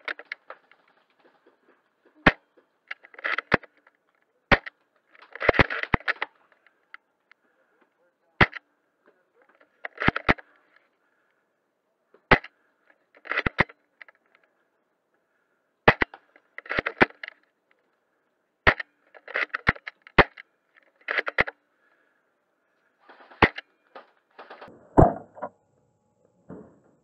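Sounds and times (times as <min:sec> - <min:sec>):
airsoft rifle shots: 0:08.4 - 0:08.6, 0:15.8 - 0:17.3, 0:23.1 - 0:23.7.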